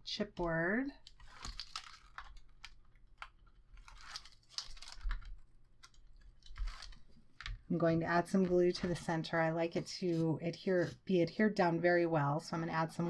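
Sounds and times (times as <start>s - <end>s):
tape liner peeling crackles: 1.0s - 7.5s.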